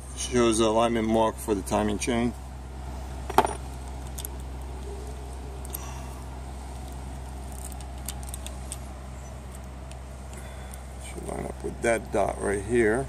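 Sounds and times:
steady low hum: 0.0s - 13.0s
metal chain clinking: 3.3s - 3.6s.

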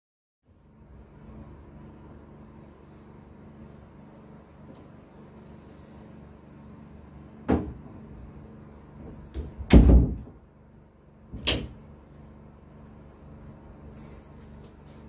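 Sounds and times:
door shutting with heavy thud: 9.6s - 10.4s
door latch click: 11.4s - 11.8s.

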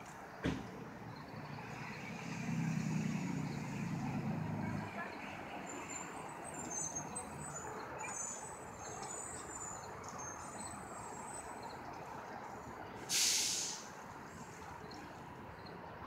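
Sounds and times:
traffic rumble: 0.0s - 16.0s
air brakes hissing: 13.1s - 14.0s.

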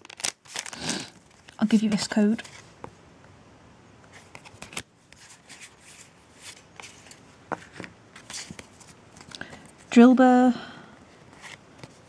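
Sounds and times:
trading cards shuffled by hand: 0.0s - 2.6s, 4.1s - 9.9s, 11.2s - 12.0s.

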